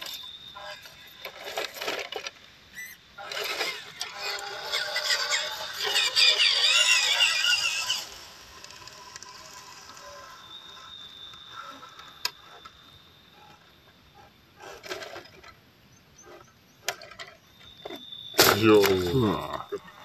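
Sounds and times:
electric motor whining: 2.8 - 13.6.

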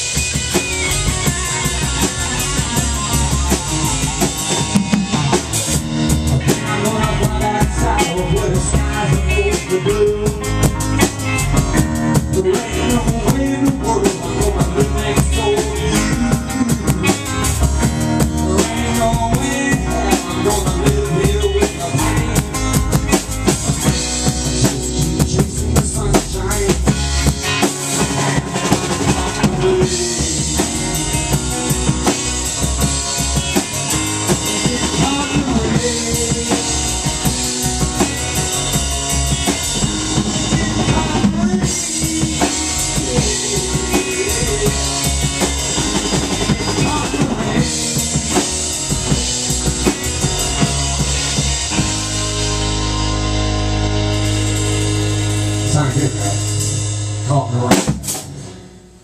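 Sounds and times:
rock band playing live: 0.0 - 59.0.

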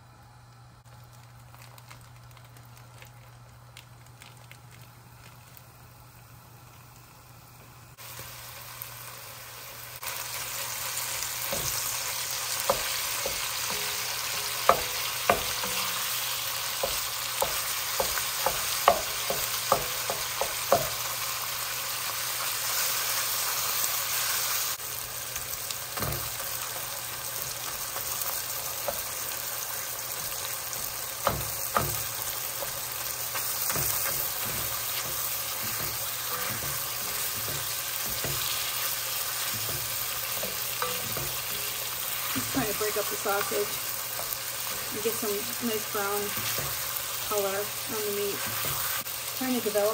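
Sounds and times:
meat sizzling in a pot: 0.8 - 49.9
utensils knocking against pot: 33.4 - 38.6, 39.4 - 41.8.

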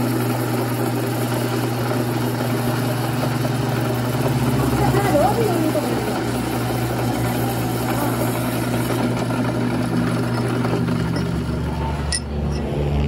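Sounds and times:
drill press boring through steel: 0.0 - 12.6.

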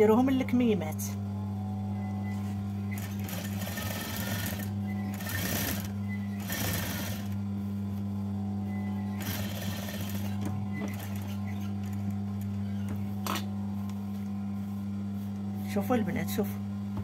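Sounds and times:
low hum: 0.0 - 3.6, 7.1 - 17.0
sewing machine stitching: 3.0 - 7.3, 9.2 - 12.0.

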